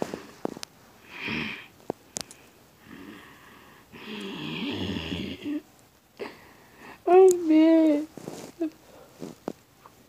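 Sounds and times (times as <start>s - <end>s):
person snoring: 1.0s - 1.7s, 2.8s - 5.6s.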